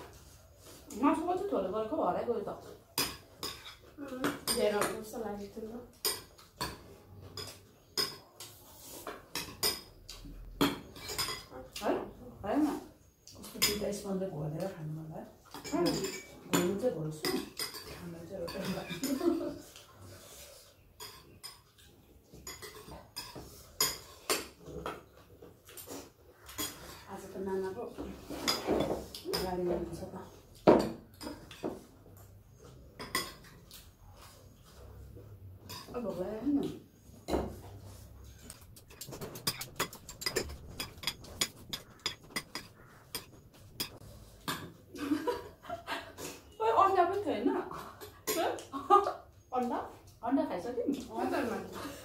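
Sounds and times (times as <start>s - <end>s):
cutlery clinking on plates: 3.0s - 5.2s, 5.9s - 11.9s, 13.4s - 14.0s, 15.5s - 19.9s, 21.0s - 27.3s, 28.1s - 30.0s, 30.6s - 33.8s, 38.4s - 45.4s
spoons clinking on ceramic bowls: 9.3s - 11.6s, 15.5s - 19.5s, 22.3s - 24.6s, 38.4s - 44.8s.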